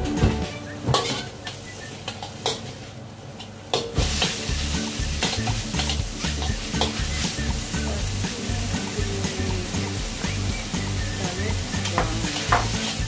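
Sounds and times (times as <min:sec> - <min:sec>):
metal spatula scraping wok: 0:00.4 - 0:03.0, 0:04.0 - 0:09.2, 0:11.3 - 0:13.0
meat sizzling in a wok: 0:01.1 - 0:13.0
spatula clicking against wok: 0:11.8 - 0:12.9.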